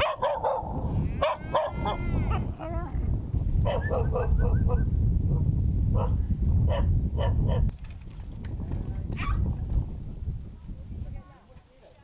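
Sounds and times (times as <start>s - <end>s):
dog barking: 0.0s - 2.4s, 3.6s - 4.8s, 6.0s - 7.6s.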